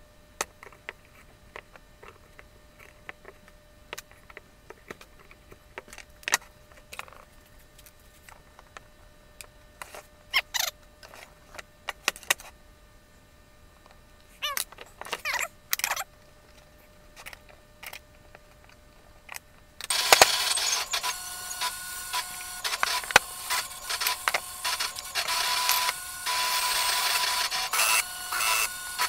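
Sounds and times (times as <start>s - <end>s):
cordless drill driving screws: 19.9s - 29.0s.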